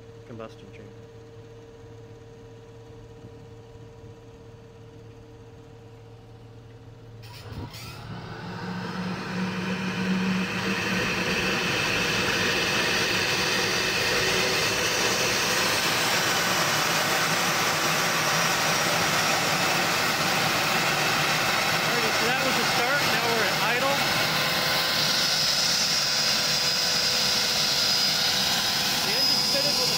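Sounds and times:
gas turbine engine spooling up: 0:07.1 - 0:29.9.

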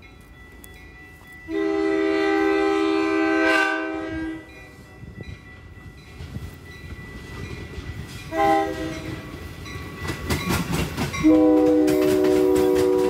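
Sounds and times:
train horn blast: 0:01.5 - 0:04.6, 0:08.3 - 0:09.2, 0:11.2 - 0:13.0.

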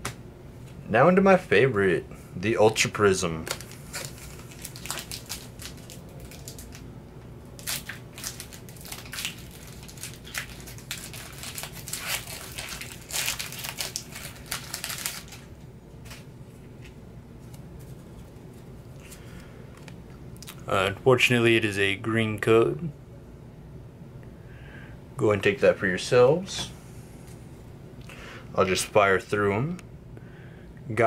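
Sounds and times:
foil wrapper crinkling: 0:03.4 - 0:06.9, 0:07.5 - 0:16.3.

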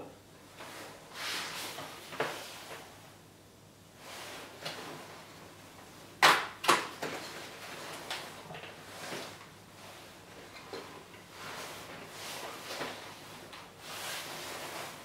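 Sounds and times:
loud sharp paper snaps: 0:06.2 - 0:06.9.

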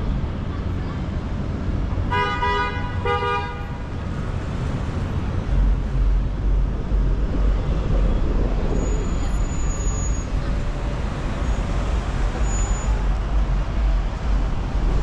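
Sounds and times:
deep traffic rumble: 0:00.0 - 0:15.0
street traffic noise: 0:00.0 - 0:15.0
car horn honking: 0:02.1 - 0:03.8.

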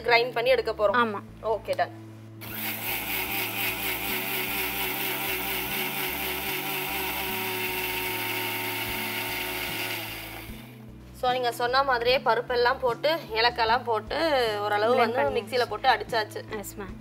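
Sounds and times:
mixer grinder dry-grinding: 0:02.4 - 0:10.7.

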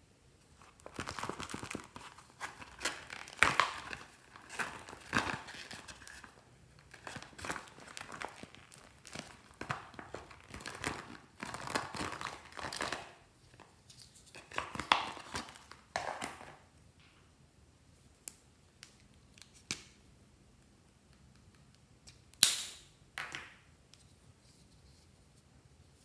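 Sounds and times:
plastic pouch crinkling: 0:00.6 - 0:13.3.

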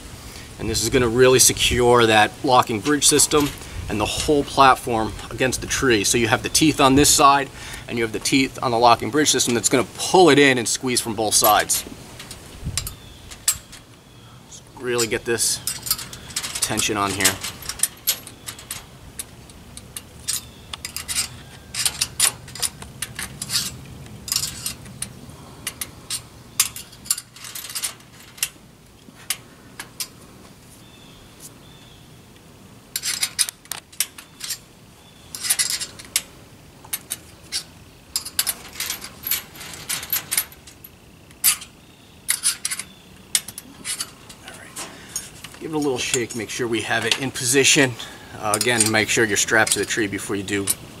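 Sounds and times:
steel chain clinking: 0:06.0 - 0:28.6, 0:32.9 - 0:50.8.

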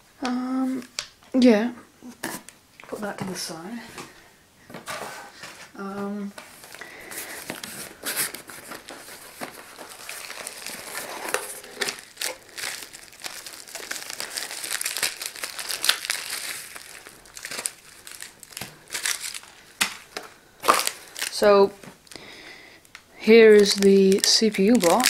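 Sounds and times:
bubble wrap crinkling: 0:06.5 - 0:22.2, 0:22.8 - 0:25.0.

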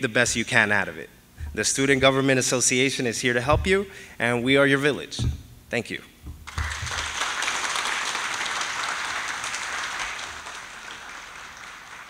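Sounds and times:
audience applauding: 0:06.5 - 0:12.0.

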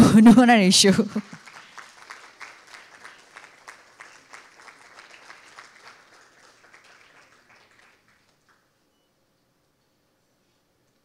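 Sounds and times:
audience applauding: 0:00.8 - 0:08.8.

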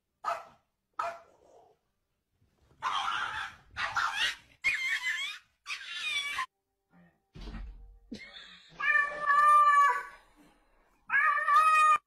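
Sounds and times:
pet animal crying: 0:11.1 - 0:12.0.

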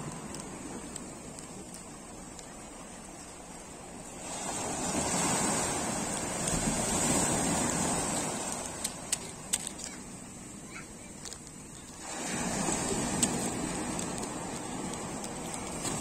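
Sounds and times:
surf washing onto beach: 0:00.0 - 0:16.0
sharp clicks: 0:08.4 - 0:10.0.

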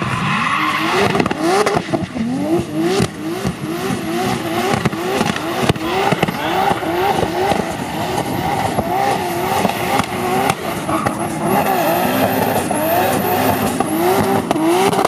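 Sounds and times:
car engine revving: 0:00.0 - 0:15.0
sharp exhaust pops: 0:01.0 - 0:11.4, 0:13.4 - 0:15.0.

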